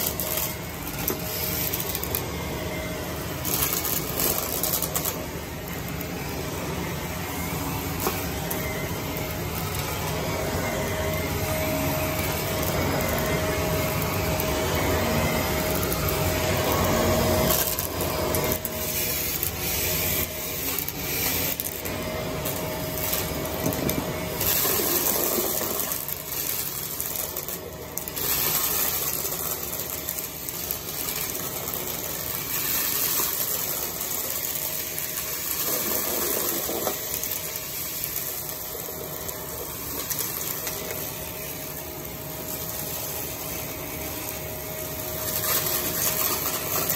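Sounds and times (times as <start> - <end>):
debris rattling through vacuum: 0.0 - 46.9
vacuum cleaner running: 0.0 - 46.9.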